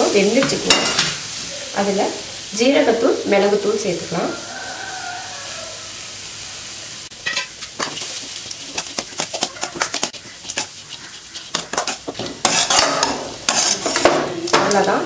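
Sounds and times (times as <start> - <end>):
cabbage sizzling in pan: 0.0 - 15.0
metal spatula scraping pan: 7.2 - 14.9.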